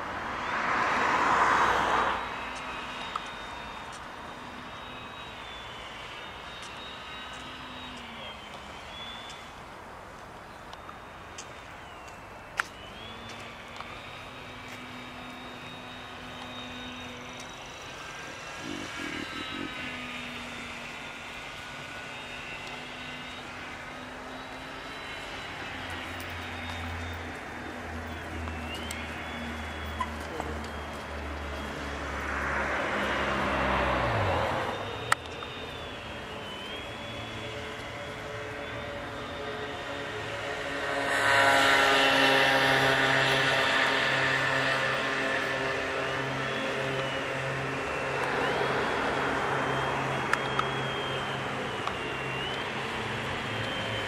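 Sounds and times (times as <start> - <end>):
model plane motor whining: 0.0 - 54.0
loud rushing noise: 12.4 - 35.0.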